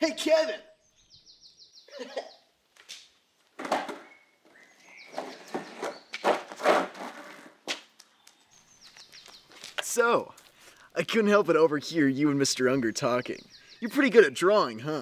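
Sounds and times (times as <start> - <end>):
birds chirping: 0.0 - 7.2, 7.9 - 15.0
skateboard rolling on asphalt: 3.6 - 7.8.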